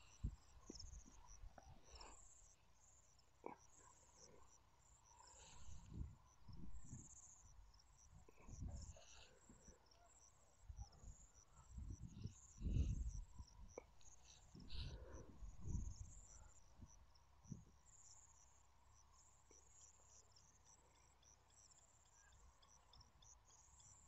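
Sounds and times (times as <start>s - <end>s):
crickets chirping: 0.0s - 24.0s
low microphone rumbles: 5.6s - 7.1s, 11.8s - 13.8s.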